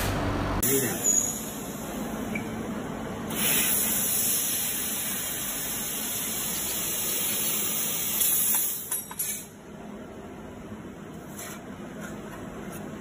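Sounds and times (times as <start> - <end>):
gas hissing from nozzle: 3.3 - 8.8.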